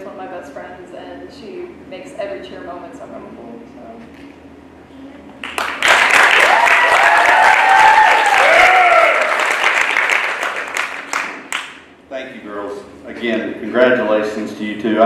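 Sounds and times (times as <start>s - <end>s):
audience applauding: 5.4s - 11.8s
voices whooping: 6.3s - 9.6s.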